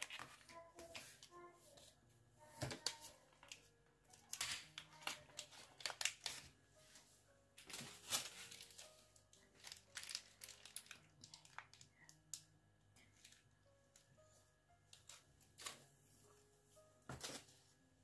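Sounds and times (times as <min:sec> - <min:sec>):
faint music: 0:00.0 - 0:18.0
plastic bag crinkling: 0:02.8 - 0:06.5, 0:07.6 - 0:12.4.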